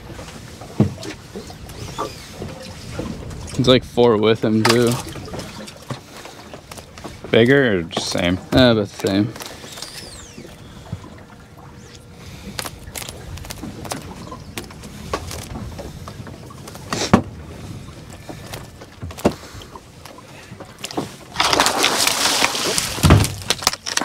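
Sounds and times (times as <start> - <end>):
low water noise: 0.0 - 24.0
fish thrashing and splashing: 4.6 - 7.3, 7.9 - 24.0.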